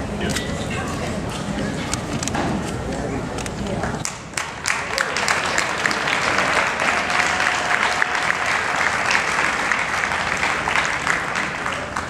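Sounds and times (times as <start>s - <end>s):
audience applauding: 4.3s - 12.0s.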